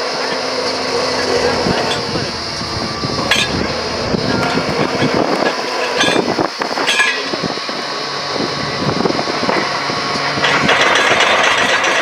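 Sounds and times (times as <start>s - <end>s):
loud rushing noise: 0.0s - 6.8s
drilling rig roaring: 0.0s - 12.0s.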